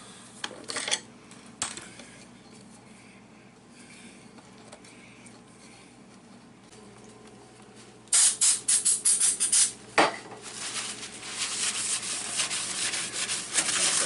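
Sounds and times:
aerosol spray hissing bursts: 0:08.1 - 0:09.8
paper towel rubbing on steel: 0:10.5 - 0:14.0.

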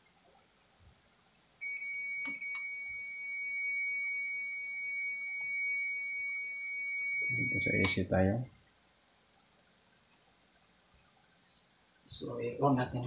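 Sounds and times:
multimeter steady high beep: 0:01.6 - 0:08.0.

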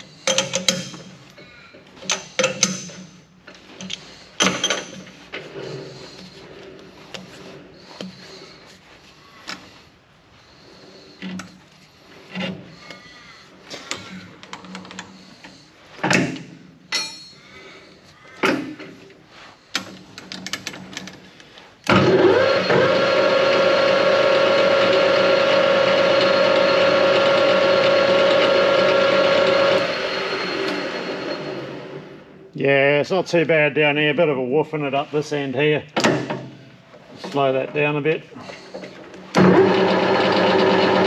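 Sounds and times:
metal knocks and clinks: 0:16.9 - 0:17.4
lathe running whine: 0:21.9 - 0:32.4, 0:39.4 - 0:41.0.

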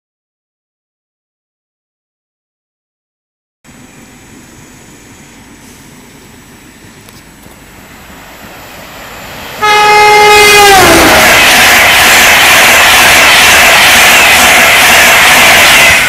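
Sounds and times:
train rumble: 0:03.7 - 0:16.0
train horn: 0:09.6 - 0:16.0.

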